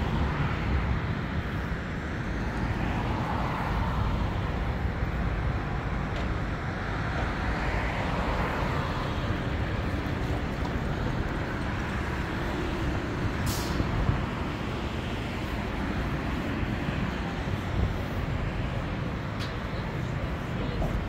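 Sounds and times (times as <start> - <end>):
traffic rumble: 0.0 - 21.0
short sharp hiss: 13.4 - 13.8.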